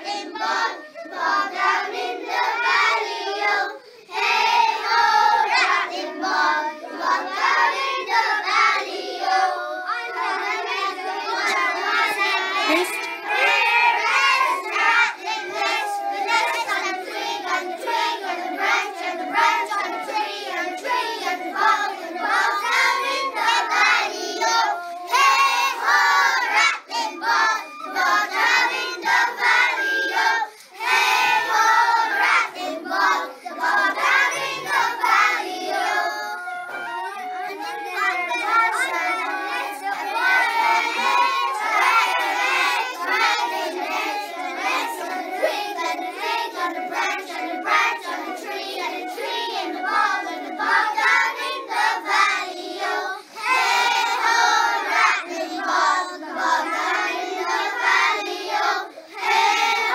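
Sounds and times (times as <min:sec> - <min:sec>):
children singing in unison: 0:00.0 - 0:59.9
tin whistle: 0:33.9 - 0:51.0.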